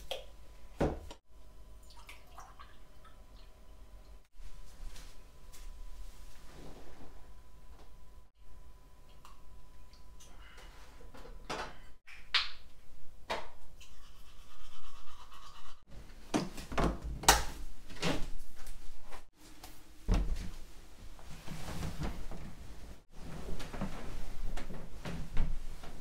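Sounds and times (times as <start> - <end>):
bedding rustling: 17.9 - 26.0.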